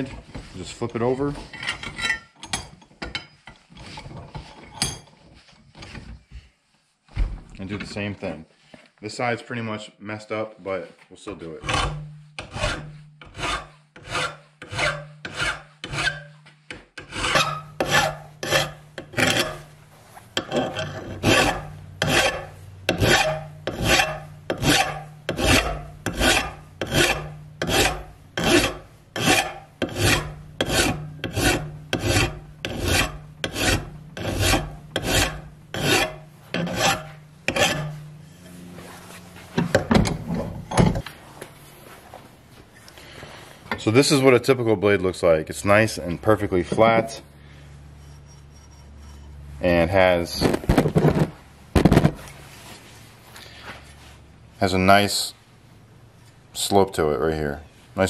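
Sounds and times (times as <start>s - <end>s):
file rasping on metal blade: 11.6s - 19.7s, 20.4s - 38.6s.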